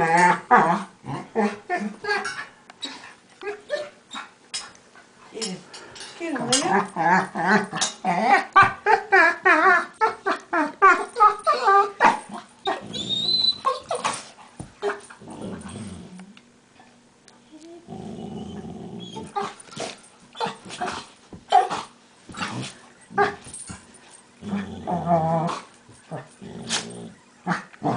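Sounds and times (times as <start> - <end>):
dogs yelping and whining: 0.0 - 4.7, 6.4 - 16.2, 17.5 - 27.9
dogs growling: 6.4 - 14.2, 14.8 - 16.4, 17.8 - 23.6, 24.4 - 27.9.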